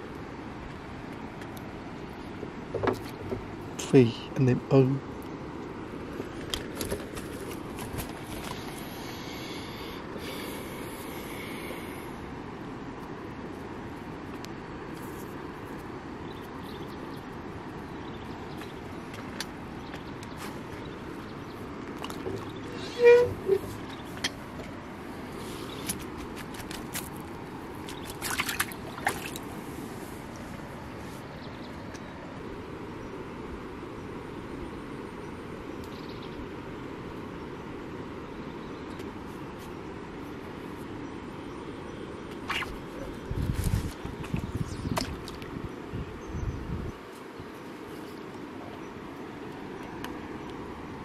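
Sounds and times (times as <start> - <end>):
low wind rumble: 0.0 - 51.0
high-pitched squeak: 22.6 - 23.8
splashy rustle of net and water: 25.4 - 30.0, 42.4 - 45.5.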